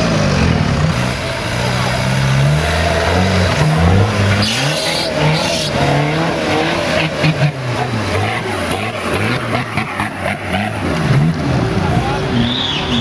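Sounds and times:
buggy engine revving: 0:00.0 - 0:13.0.

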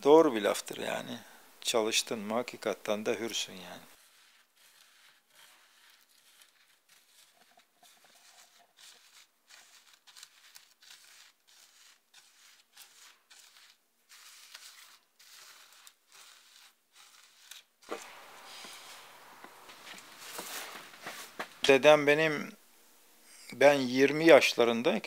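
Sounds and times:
hand rustling through dry powder: 0:03.2 - 0:22.3.

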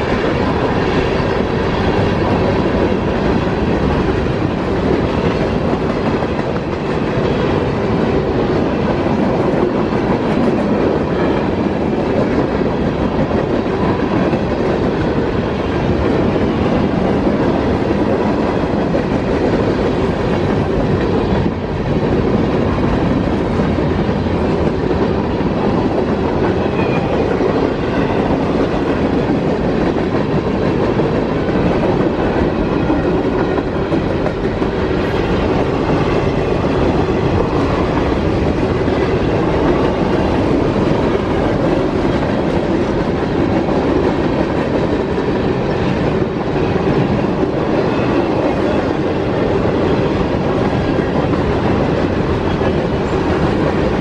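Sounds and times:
steel train wheels rumbling on rails: 0:00.0 - 0:54.0.

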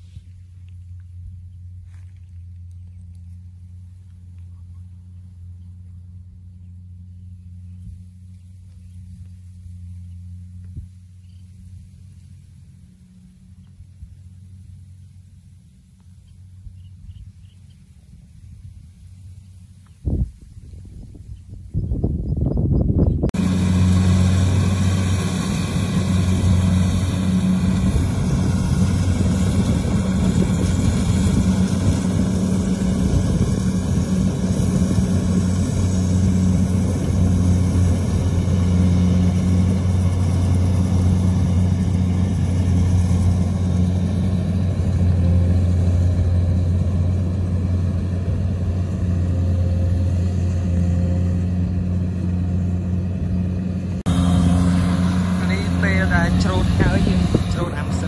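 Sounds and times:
engine running steadily: 0:00.0 - 0:58.0.

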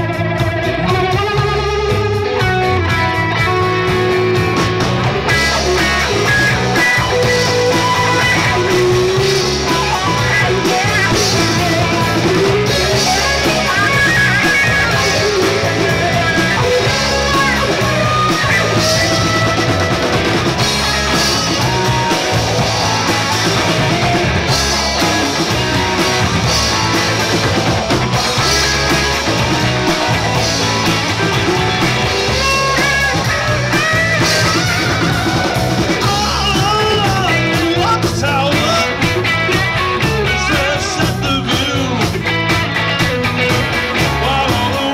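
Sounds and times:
bass guitar: 0:00.0 - 0:44.9
drum kit: 0:00.0 - 0:44.9
electric guitars: 0:00.0 - 0:44.9.

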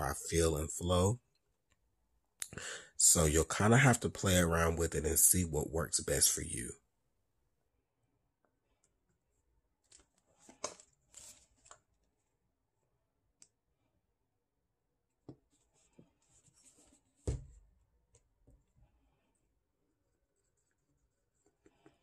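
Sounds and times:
soft knock: 0:17.2 - 0:17.6.

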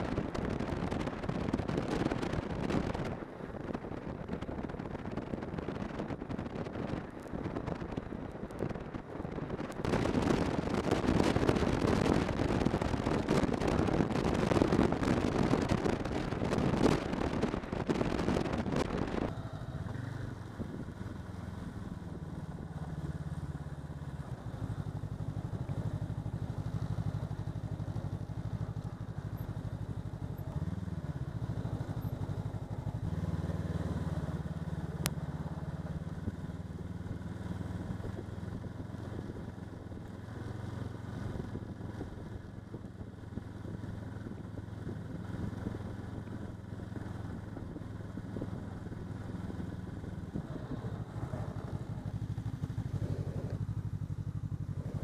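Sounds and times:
wind rushing on microphone: 0:00.0 - 0:55.0
snowmobile engine running: 0:49.9 - 0:53.8, 0:54.4 - 0:55.0.

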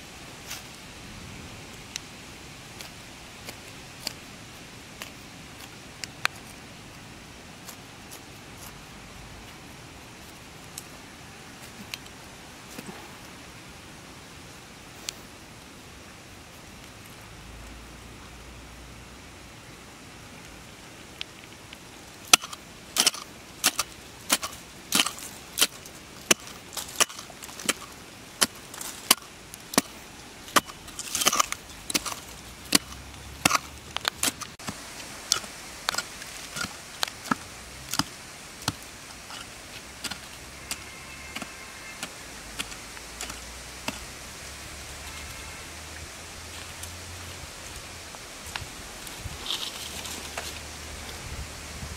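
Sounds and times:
hand hoe chopping dry dirt: 0:22.3 - 0:44.1.

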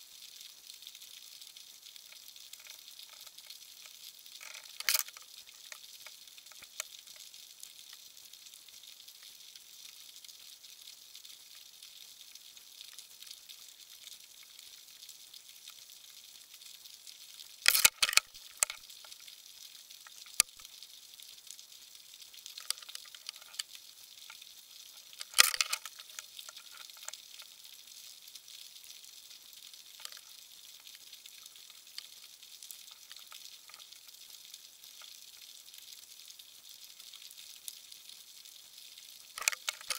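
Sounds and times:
faint crackling underwater hiss: 0:00.0 - 0:39.9
sharp underwater clicks: 0:02.6 - 0:06.9, 0:17.6 - 0:19.2, 0:20.0 - 0:20.6, 0:22.6 - 0:24.4, 0:25.0 - 0:27.5, 0:30.0 - 0:30.3, 0:39.4 - 0:39.9.

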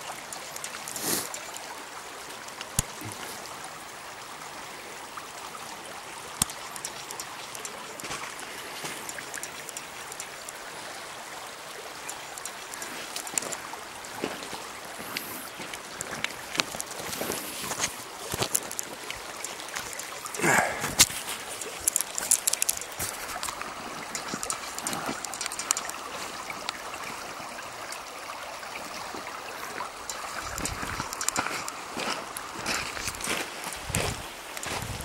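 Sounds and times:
creek trickling over stones: 0:00.0 - 0:35.0
sharp clicks: 0:00.1 - 0:01.7, 0:06.4 - 0:10.6, 0:12.0 - 0:13.6, 0:21.0 - 0:26.0, 0:30.0 - 0:31.7.

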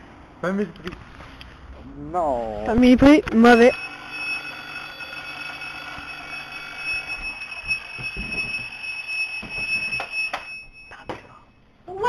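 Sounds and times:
alarm clock ringing: 0:03.3 - 0:11.0
knocks: 0:07.6 - 0:08.8.

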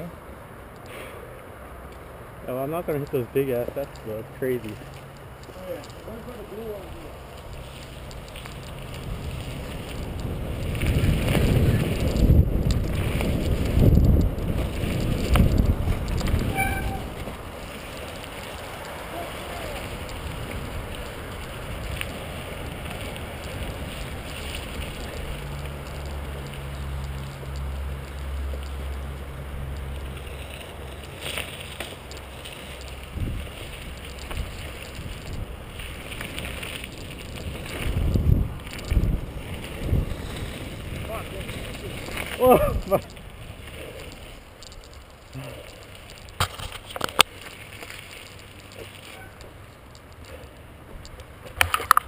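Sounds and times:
bike tyres rolling on gravel: 0:01.7 - 0:52.0
wind rushing over microphone: 0:06.7 - 0:27.2, 0:32.9 - 0:44.7.

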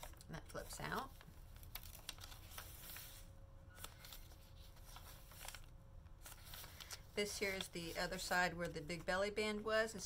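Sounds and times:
paper crinkles: 0:00.0 - 0:08.4
paper pages rustling: 0:00.0 - 0:09.0.

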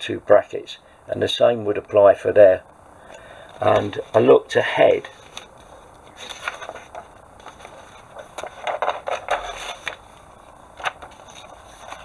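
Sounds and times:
paper rustling: 0:03.4 - 0:12.0.

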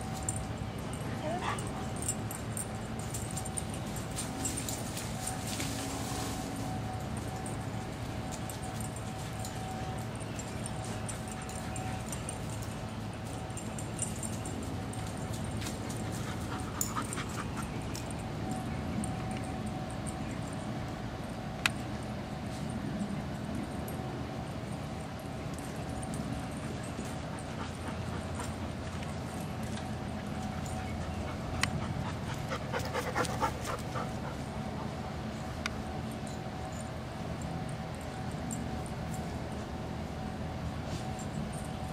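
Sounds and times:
steady background hum: 0:00.0 - 0:41.9
steady background noise: 0:00.0 - 0:41.9
dog panting: 0:15.8 - 0:17.9, 0:30.4 - 0:35.0.

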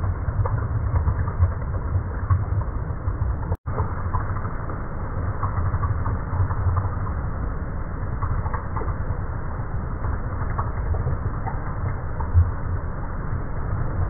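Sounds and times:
small underwater clicks: 0:00.0 - 0:07.3, 0:08.1 - 0:09.3, 0:09.9 - 0:12.7
low underwater rumble: 0:00.0 - 0:14.0.

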